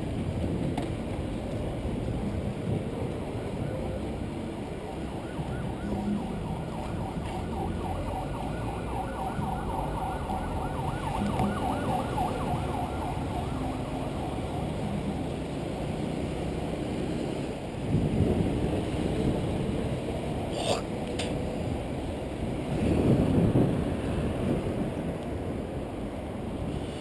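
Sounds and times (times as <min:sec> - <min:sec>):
road and wind noise: 0:00.0 - 0:27.0
electronic siren yelping: 0:03.9 - 0:15.8.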